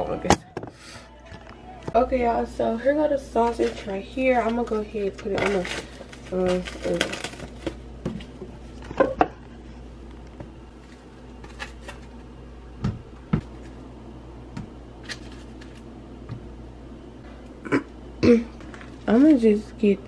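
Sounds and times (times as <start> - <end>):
plastic packaging crinkling: 3.4 - 9.0, 10.7 - 12.3.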